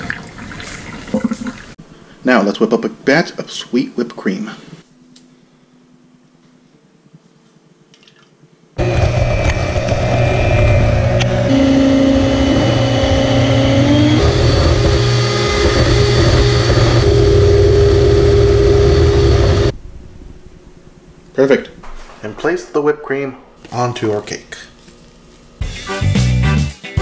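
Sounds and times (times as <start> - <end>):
stand mixer motor whipping: 8.8 - 19.7.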